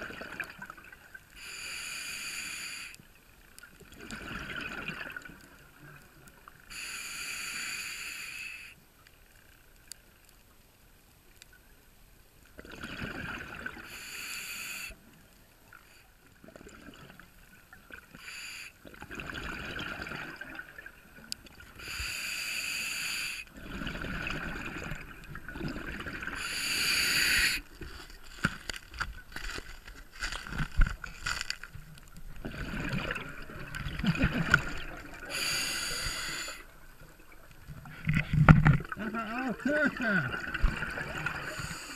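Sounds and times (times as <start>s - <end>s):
diver breathing through regulator: 1.4s - 3.0s, 6.7s - 8.8s, 13.9s - 15.0s, 21.8s - 23.5s, 26.3s - 27.7s, 35.1s - 36.7s, 41.4s - 41.9s
bubbling exhalations: 23.6s - 28.4s, 32.4s - 36.6s, 37.8s - 41.9s.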